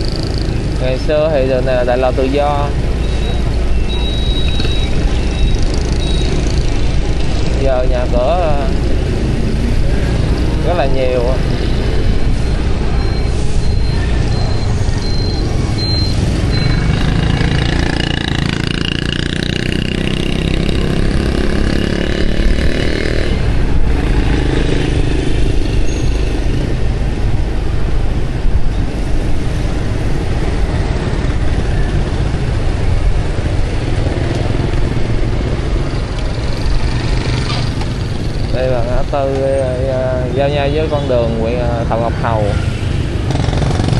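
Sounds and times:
motorbikes passing: 0:00.0 - 0:43.9.

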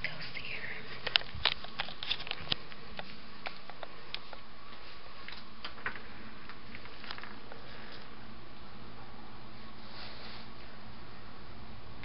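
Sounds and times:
light footsteps: 0:00.9 - 0:05.5.

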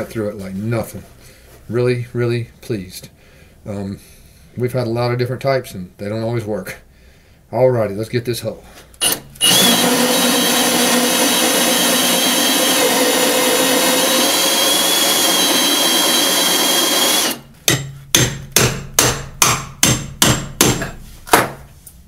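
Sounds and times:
power drill cutting through wood: 0:09.0 - 0:17.4.

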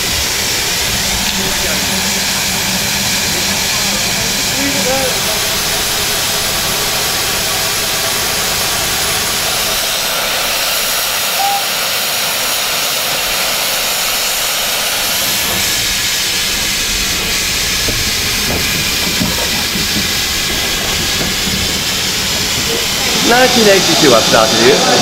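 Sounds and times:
low rumble: 0:00.0 - 0:09.9
steam locomotive hissing: 0:00.0 - 0:25.0.

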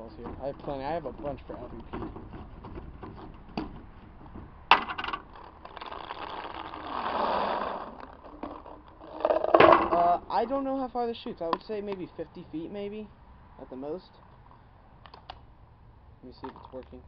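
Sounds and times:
paintballs rattling into hopper: 0:04.8 - 0:10.2.

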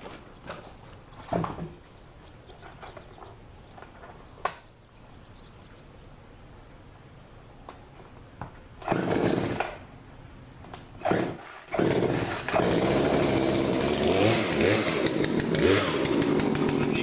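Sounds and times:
chainsaw starting and revving: 0:08.8 - 0:09.8, 0:11.0 - 0:17.0.

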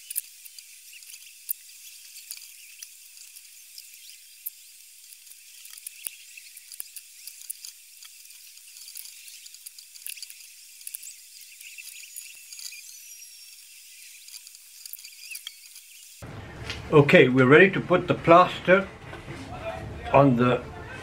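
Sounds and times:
steady high-pitched hiss: 0:00.0 - 0:16.3.

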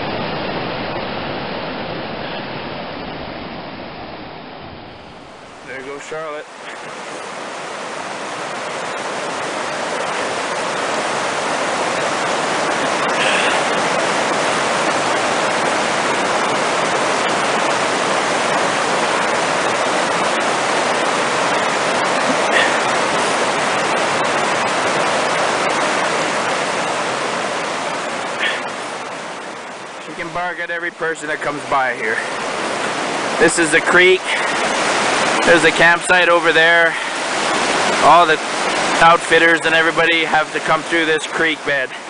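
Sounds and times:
creek water roaring over boulders: 0:00.0 - 0:42.0.

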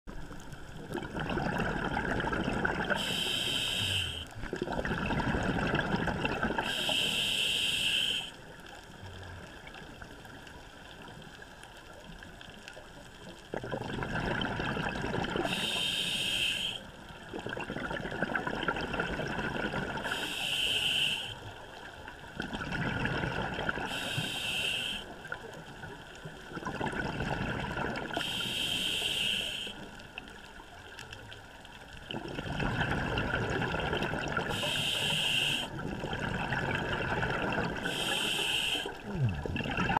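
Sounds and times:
bubbling gurgling exhale: 0:00.7 - 0:08.4, 0:13.2 - 0:21.6, 0:22.3 - 0:30.0, 0:32.0 - 0:39.9
hissing regulator inhale: 0:02.9 - 0:04.4, 0:06.6 - 0:08.4, 0:15.4 - 0:16.9, 0:20.0 - 0:21.4, 0:23.8 - 0:25.2, 0:28.2 - 0:29.9, 0:34.5 - 0:35.8, 0:37.8 - 0:39.1.

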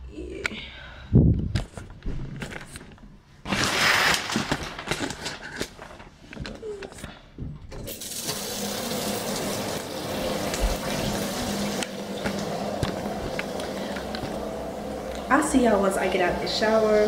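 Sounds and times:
shower water spray hissing: 0:07.9 - 0:17.0.

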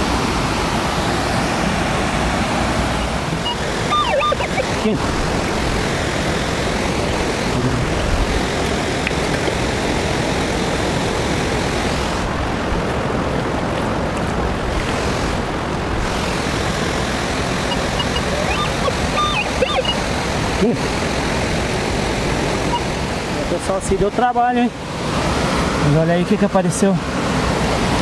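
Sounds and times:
waterfall and stream rushing: 0:00.0 - 0:28.0
metal detector beeps: 0:03.4 - 0:04.9, 0:17.6 - 0:20.0, 0:22.7 - 0:22.9.

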